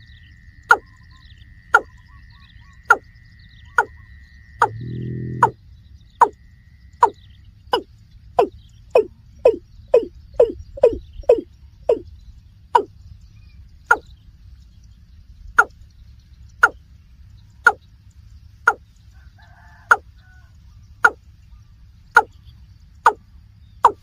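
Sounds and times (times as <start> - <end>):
bird calling with falling notes: 4.6 - 5.6, 7.0 - 12.1.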